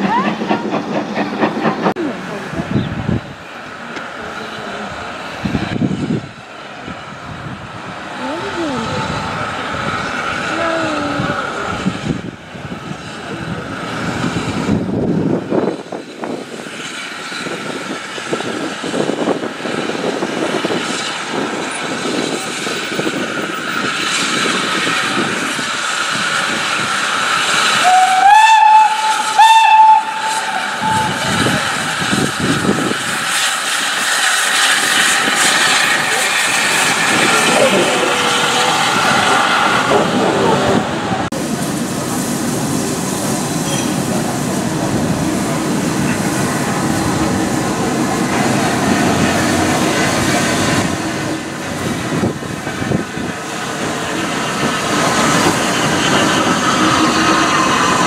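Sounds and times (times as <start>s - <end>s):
steam locomotive hissing: 0.0s - 58.0s
steam whistle blasts: 27.8s - 31.6s.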